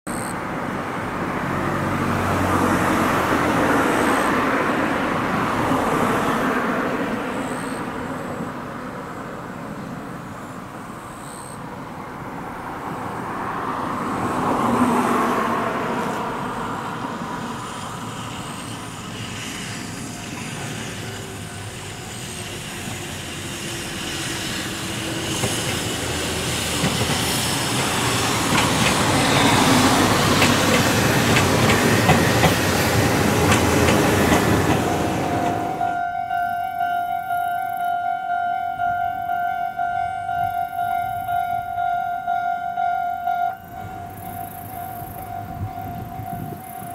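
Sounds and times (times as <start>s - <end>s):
distant traffic: 0.1s - 46.9s
electric train approaching: 0.1s - 46.9s
wheels clicking over rail joints: 24.8s - 46.9s.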